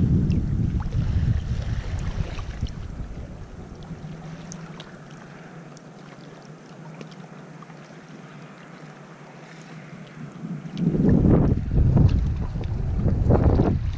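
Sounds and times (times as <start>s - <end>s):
small waves lapping over pebbles: 0.9s - 11.2s
trickling water ticks: 3.7s - 8.8s, 9.8s - 11.2s.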